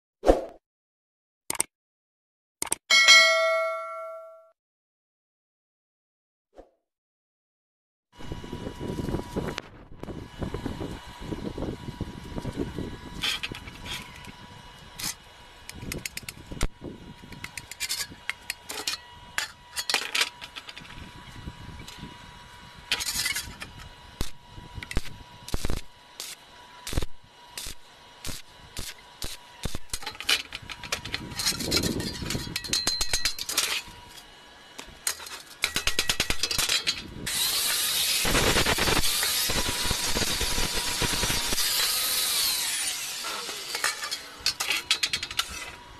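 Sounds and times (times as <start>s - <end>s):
welding arc crackling: 24.1s - 31.8s, 37.2s - 44.7s.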